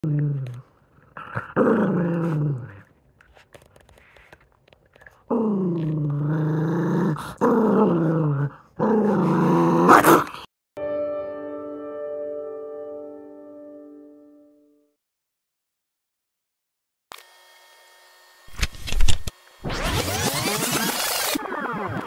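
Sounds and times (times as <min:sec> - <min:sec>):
dog growling: 0:00.0 - 0:02.9, 0:05.1 - 0:10.5.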